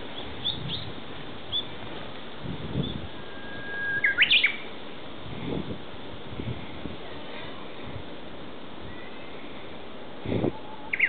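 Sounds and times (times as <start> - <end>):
bush warbler singing: 0.0 - 1.8, 2.7 - 4.8, 8.8 - 11.0.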